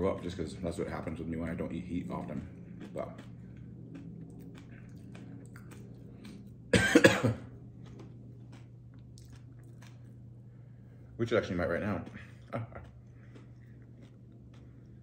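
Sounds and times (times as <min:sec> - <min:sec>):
man coughing: 0:06.7 - 0:07.5.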